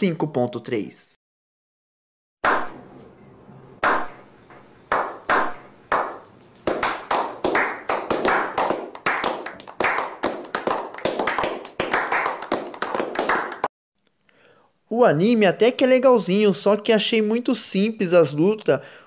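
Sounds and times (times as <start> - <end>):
group clapping: 3.8 - 4.2, 4.9 - 13.7.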